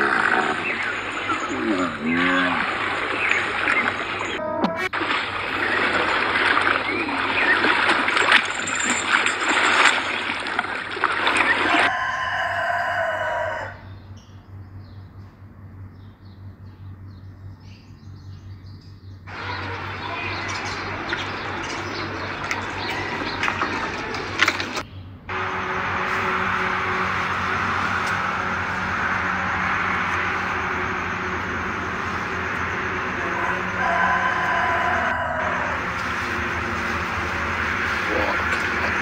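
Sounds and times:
pool water splashing: 0:00.0 - 0:11.9, 0:19.3 - 0:39.0
steady outdoor noise: 0:00.0 - 0:39.0
short pitched sound: 0:04.4 - 0:05.1.

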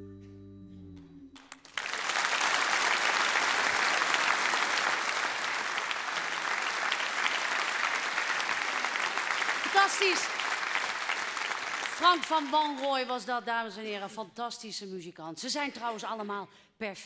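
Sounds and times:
audience applause: 0:01.4 - 0:12.9.

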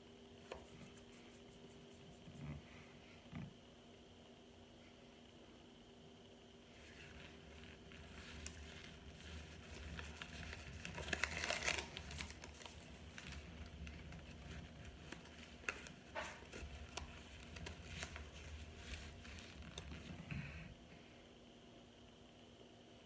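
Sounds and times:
crisp crackles and crunches: 0:06.8 - 0:20.2.

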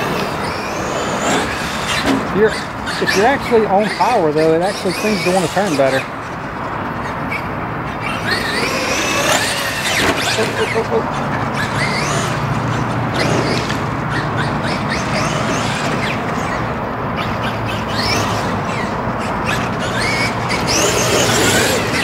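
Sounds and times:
electric motor whining: 0:00.0 - 0:06.1, 0:07.3 - 0:22.0.

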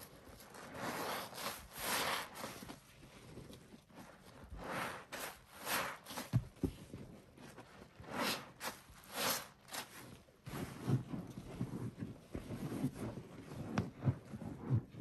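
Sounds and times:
wet sponges squeezed: 0:00.1 - 0:06.6, 0:07.6 - 0:11.8.

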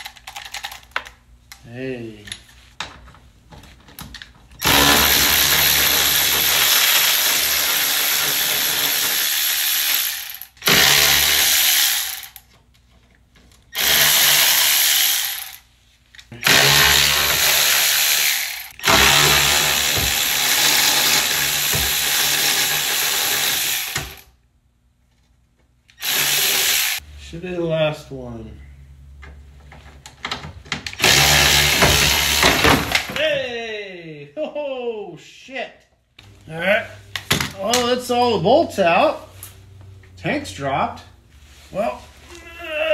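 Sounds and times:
cordless power tool whirring: 0:04.6 - 0:12.4, 0:13.7 - 0:15.6, 0:16.4 - 0:24.3, 0:25.9 - 0:27.0, 0:31.0 - 0:33.1.

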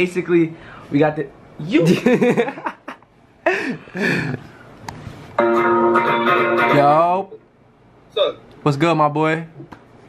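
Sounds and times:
electric guitar chord ringing: 0:05.4 - 0:07.2.

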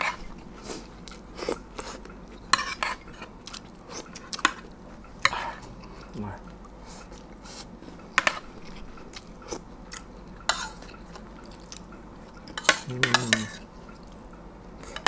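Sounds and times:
spoons clinking on ceramic plates: 0:12.5 - 0:13.6.

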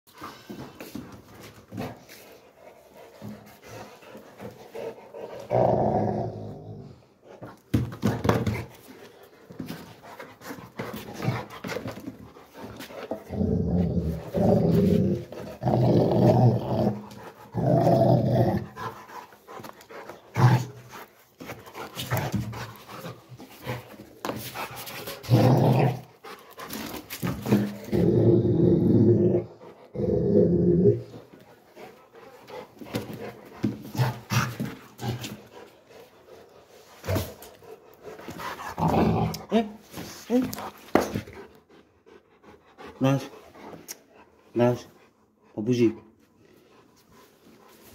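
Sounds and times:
dog growling: 0:04.8 - 0:07.2, 0:12.8 - 0:19.3, 0:25.2 - 0:26.4, 0:27.2 - 0:31.4, 0:37.1 - 0:39.8
knocks and scuffs: 0:07.4 - 0:13.1, 0:19.6 - 0:27.9, 0:32.4 - 0:35.5, 0:39.8 - 0:41.4.

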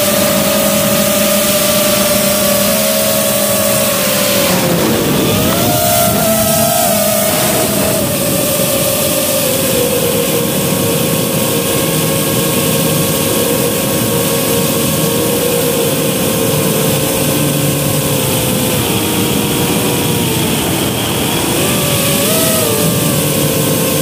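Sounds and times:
quadcopter motors whining: 0:00.0 - 0:24.0
rushing air: 0:01.6 - 0:10.6.

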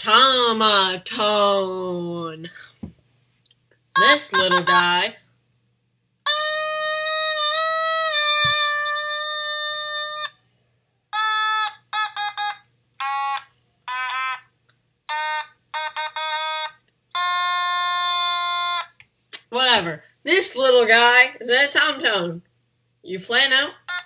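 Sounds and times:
electronic toy synthesizer notes: 0:04.0 - 0:05.0, 0:06.3 - 0:10.3, 0:11.1 - 0:14.5, 0:15.1 - 0:19.0.

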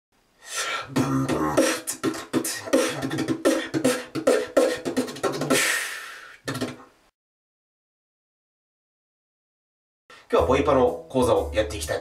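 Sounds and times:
beatboxing rhythm: 0:00.5 - 0:06.9.

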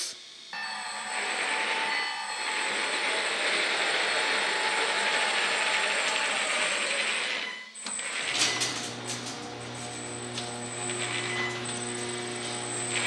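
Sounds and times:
garage door opener hum: 0:00.8 - 0:13.0
toy truck motor whir: 0:01.2 - 0:08.9.

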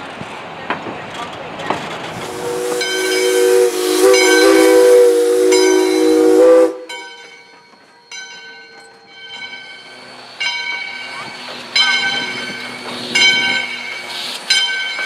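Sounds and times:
steam locomotive chime whistle: 0:02.2 - 0:15.0.

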